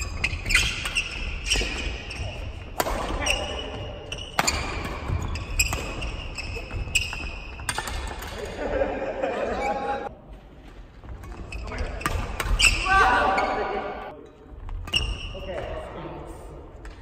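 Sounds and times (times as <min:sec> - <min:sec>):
shoe squeaks: 0:00.0 - 0:08.2, 0:11.1 - 0:13.8, 0:14.8 - 0:15.7
racket hitting shuttlecock: 0:00.0 - 0:08.5.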